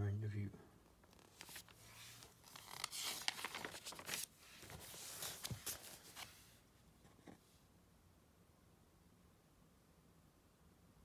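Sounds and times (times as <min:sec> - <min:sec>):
magazine pages rustling: 0:01.1 - 0:06.6.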